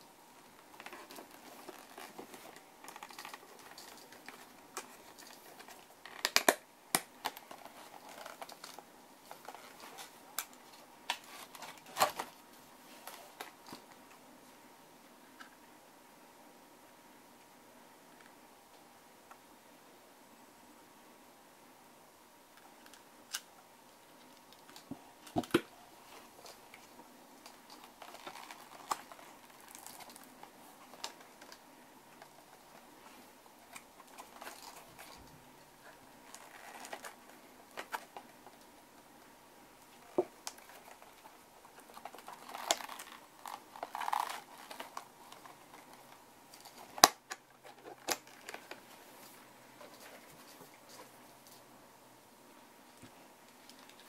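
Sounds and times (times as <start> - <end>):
leather rustling: 0.8 - 6.2, 7.5 - 8.8, 36.2 - 37.2, 41.8 - 46.0.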